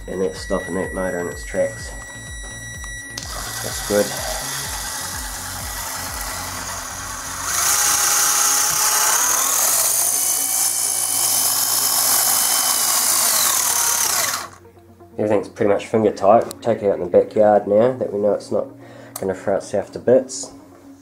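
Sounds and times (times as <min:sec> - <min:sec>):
electric motor and gear whine: 0:00.0 - 0:14.7.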